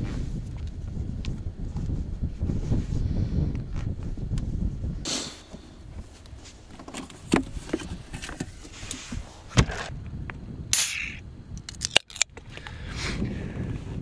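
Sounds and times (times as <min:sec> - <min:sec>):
rustle: 0:03.7 - 0:10.2.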